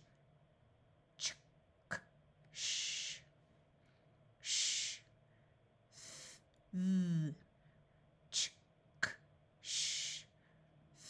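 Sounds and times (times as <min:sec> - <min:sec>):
person sounding out consonants: 0:06.8 - 0:07.4.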